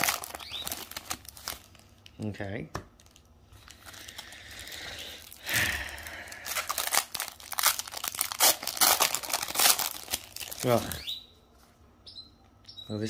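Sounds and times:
foil wrapper tearing: 0:00.0 - 0:02.1, 0:03.0 - 0:11.0
foil wrapper crinkling: 0:00.0 - 0:02.2, 0:02.9 - 0:11.0.

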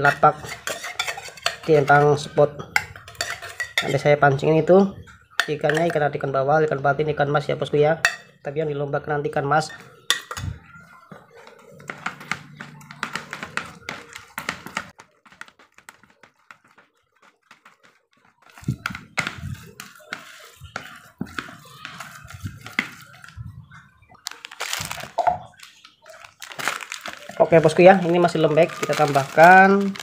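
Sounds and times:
spatula scraping plastic bowl: 0:00.0 - 0:04.0, 0:11.0 - 0:23.4.

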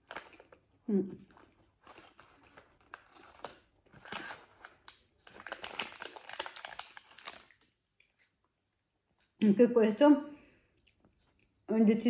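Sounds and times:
plastic wrapper crinkling: 0:00.0 - 0:07.8.

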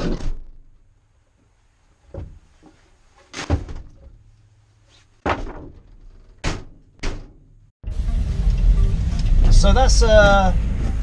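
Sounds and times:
van doors banging shut: 0:00.0 - 0:00.7, 0:03.3 - 0:04.2, 0:05.2 - 0:07.6
knocks and thuds in van: 0:02.0 - 0:04.3, 0:05.2 - 0:07.6.

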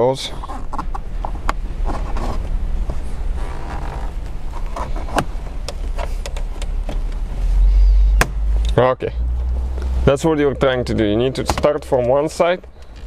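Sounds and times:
steady low hum: 0:00.0 - 0:13.0
plastic tool scraping dashboard trim: 0:00.4 - 0:07.0.

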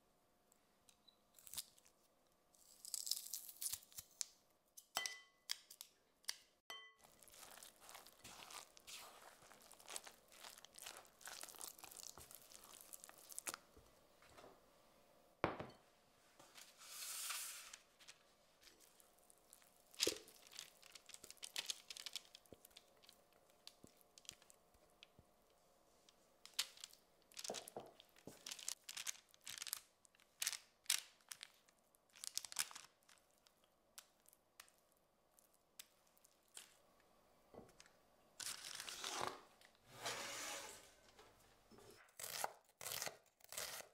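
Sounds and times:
parchment paper crinkling: 0:07.0 - 0:13.8, 0:16.6 - 0:25.1, 0:26.5 - 0:34.7
spatula scraping wet batter: 0:07.1 - 0:11.6
knocks and scrapes: 0:39.1 - 0:42.1.

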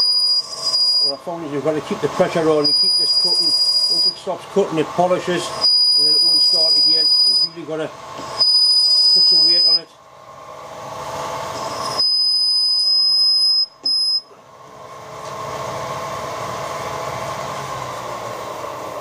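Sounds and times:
high-pitched cutting squeal: 0:00.0 - 0:01.3, 0:02.4 - 0:04.3, 0:05.4 - 0:07.6, 0:08.3 - 0:09.9, 0:11.5 - 0:14.3
milling machine humming: 0:00.0 - 0:19.0.

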